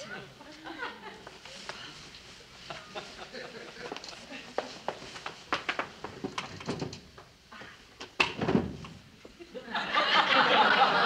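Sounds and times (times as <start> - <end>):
studio audience laughter: 2.7 - 4.5, 9.5 - 11.0.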